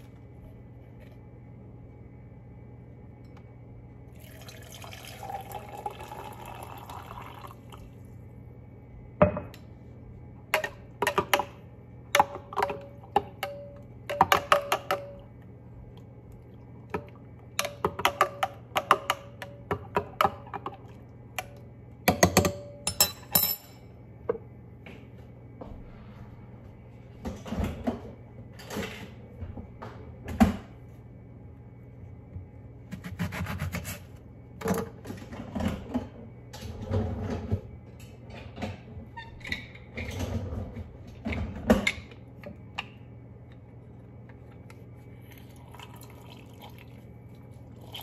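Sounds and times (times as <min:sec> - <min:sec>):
water poured into a mug: 0:04.2 - 0:07.9, 0:45.3 - 0:47.1, 0:47.7 - 0:48.0.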